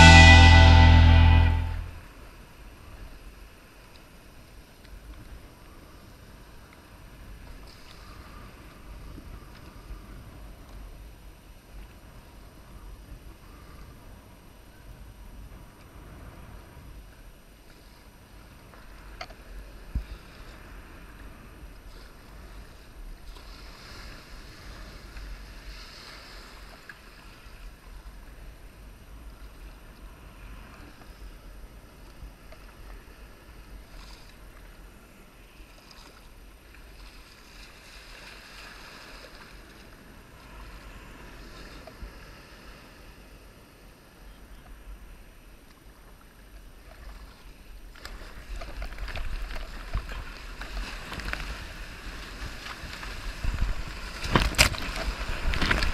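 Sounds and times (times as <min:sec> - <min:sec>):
whitewater surf rushing: 0:00.0 - 0:01.9
wind buffeting microphone: 0:49.0 - 0:55.9.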